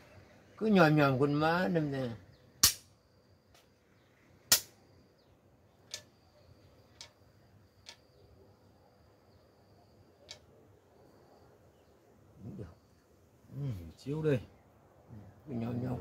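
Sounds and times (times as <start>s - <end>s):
wooden pieces clicking: 5.8s - 6.1s
wooden chess piece clacking: 5.9s - 6.1s.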